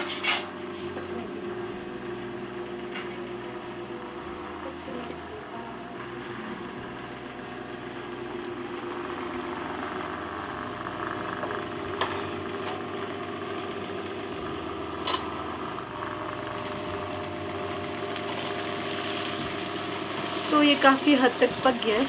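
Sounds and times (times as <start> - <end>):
low steady hum: 0.0 - 22.0
vegetables sizzling in pan: 16.1 - 22.0.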